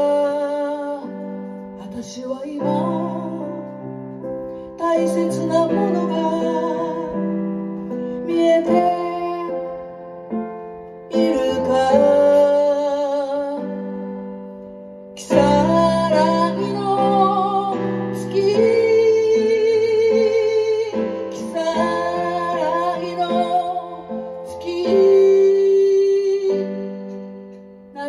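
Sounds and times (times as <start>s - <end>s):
piano chords: 0.0s - 28.0s
woman singing with vibrato: 15.2s - 26.8s.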